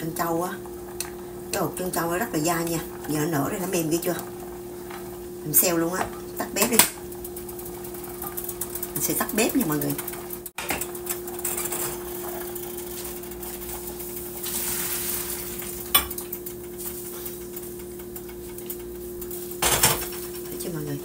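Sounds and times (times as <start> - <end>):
steady hum: 0.0 - 21.0
pot and utensils clinking: 6.0 - 20.6
water pouring through strainer: 11.3 - 15.8
kitchenware clattering: 19.6 - 20.4.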